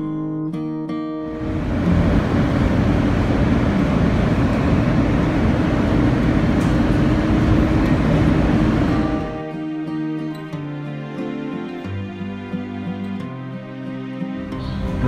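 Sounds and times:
gentle guitar music: 0.0 - 15.0
subway train rumbling on track: 1.3 - 9.4, 14.4 - 15.0.

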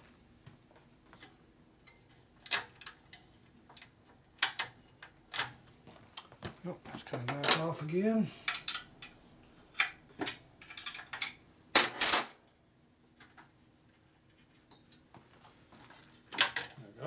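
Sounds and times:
metal tools clinking and knocking: 7.2 - 7.6, 9.8 - 12.5.

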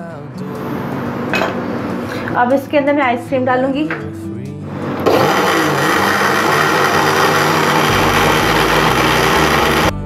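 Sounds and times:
blender motor running: 4.8 - 10.0.

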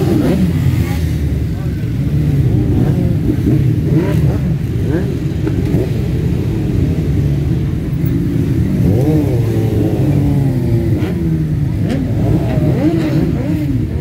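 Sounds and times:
motorcycle engines revving: 0.0 - 14.0.

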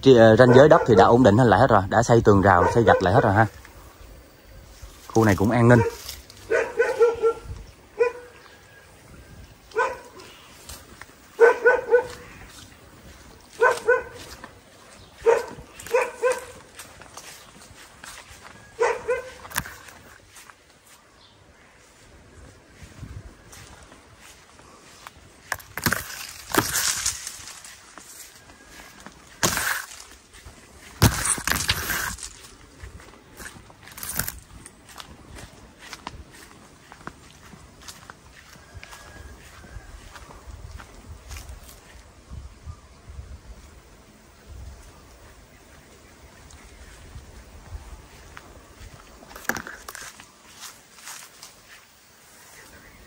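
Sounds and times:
dog barking: 0.4 - 1.2, 2.4 - 3.5, 5.7 - 8.4, 9.7 - 10.3, 11.3 - 12.3, 13.6 - 14.3, 15.2 - 16.7, 18.8 - 19.4
footsteps crunching dry leaves: 1.3 - 42.2, 45.2 - 53.0.

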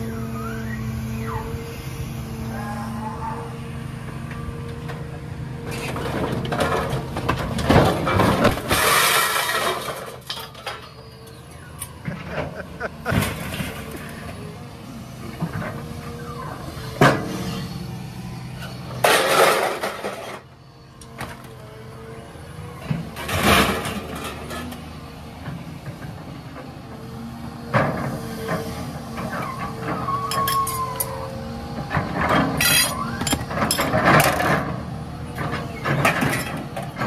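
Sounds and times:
excavator diesel engine running: 0.0 - 37.0
scrap metal clattering and crashing: 5.8 - 10.9, 19.0 - 20.4.

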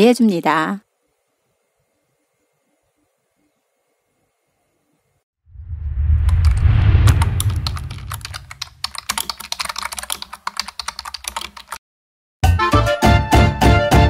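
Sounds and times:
low rumble: 5.5 - 8.8
rapid keyboard typing: 7.1 - 11.8
bouncy background music: 12.4 - 14.0.

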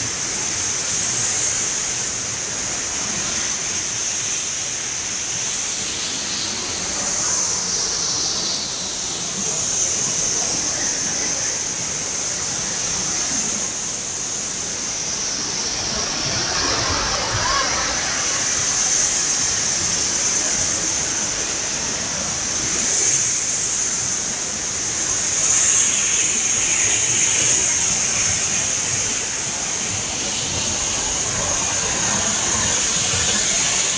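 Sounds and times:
high-pitched hiss: 0.0 - 33.9
waterfall and river rushing: 14.2 - 33.9.

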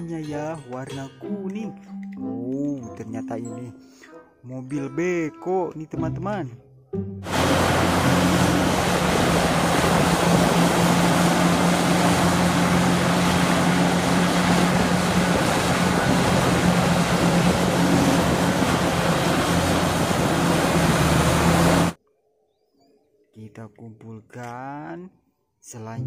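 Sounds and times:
excavator diesel engine droning: 7.2 - 22.0.

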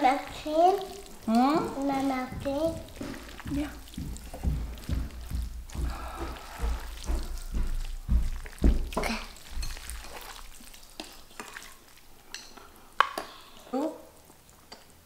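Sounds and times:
wet noodles slapping and squishing: 0.0 - 15.0
chopsticks knocking: 2.3 - 10.2.

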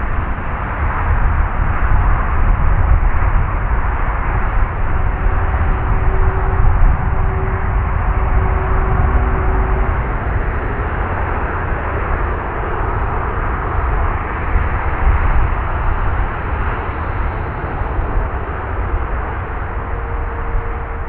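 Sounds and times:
jet engines running: 0.0 - 21.0.

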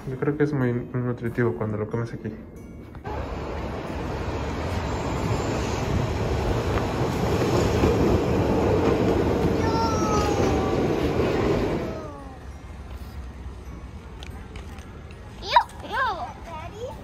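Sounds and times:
tram rumble: 3.0 - 17.0
wheel squeal: 4.6 - 6.2.

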